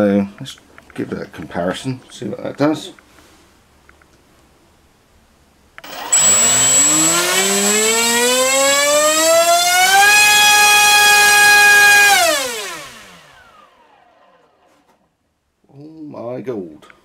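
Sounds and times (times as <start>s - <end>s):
brushless motor whine: 5.8s - 14.9s.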